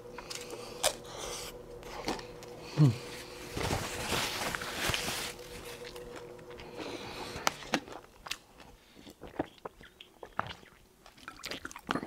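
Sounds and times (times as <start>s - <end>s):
paper napkin rustling: 3.3s - 6.2s.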